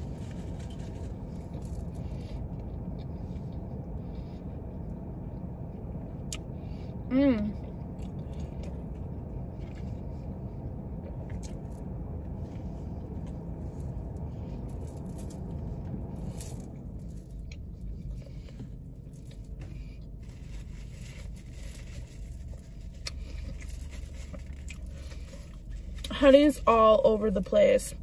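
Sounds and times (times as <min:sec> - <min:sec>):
car engine and fan hum: 0:00.0 - 0:28.0
crunching and wet chewing: 0:07.8 - 0:11.6, 0:22.3 - 0:26.0.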